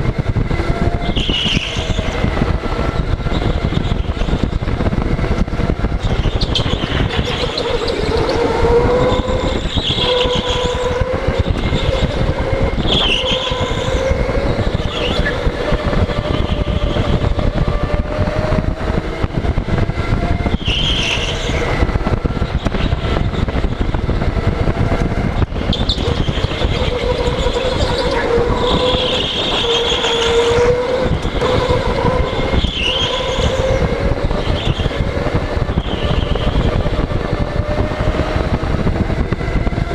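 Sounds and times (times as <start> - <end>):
go-kart motor: 0.0 - 39.9
wind and tyre rumble: 0.0 - 39.9.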